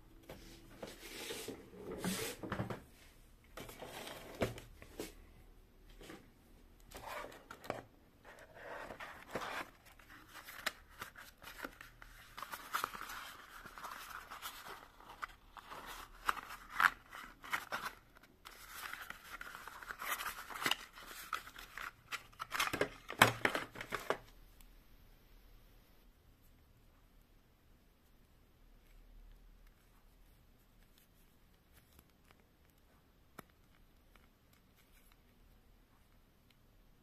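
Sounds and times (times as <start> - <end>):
packaging rustling and scraping: 3.6 - 5.2, 6.9 - 24.2.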